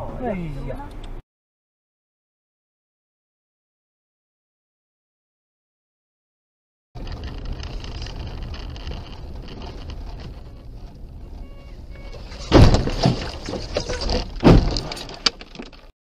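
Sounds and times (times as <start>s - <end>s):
car cabin rumble: 7.0s - 15.2s
clattering: 7.0s - 15.9s
car crash bangs: 12.2s - 15.2s.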